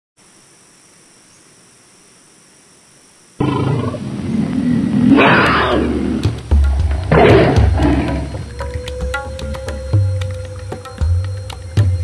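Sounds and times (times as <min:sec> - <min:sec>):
faint hiss: 0:00.2 - 0:12.0
tiger growling and roaring: 0:03.4 - 0:08.5.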